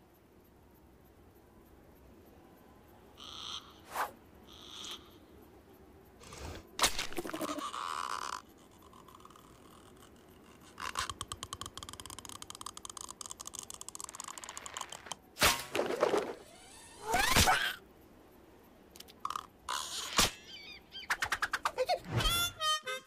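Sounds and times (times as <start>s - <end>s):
buzzing rattle: 0.0s - 21.8s
fast clicking rattle: 7.4s - 15.3s.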